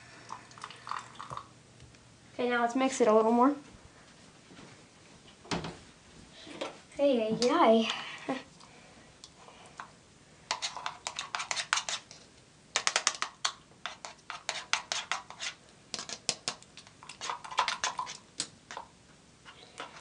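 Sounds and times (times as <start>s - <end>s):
metal spoon scraping plastic cup: 10.5s - 12.2s, 12.8s - 16.2s.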